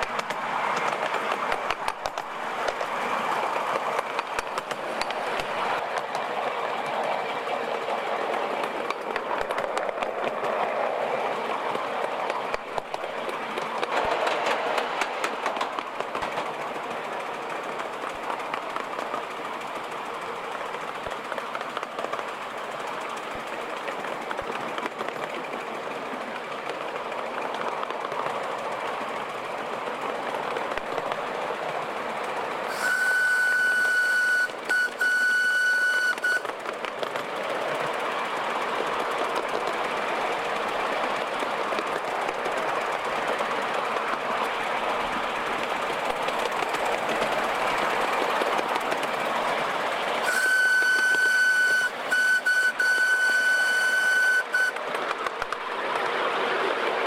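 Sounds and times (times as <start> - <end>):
miniature steam locomotive running: 0.0 - 57.0
wheels clicking on track: 0.0 - 57.0
steam whistle: 32.7 - 36.5, 50.2 - 54.8.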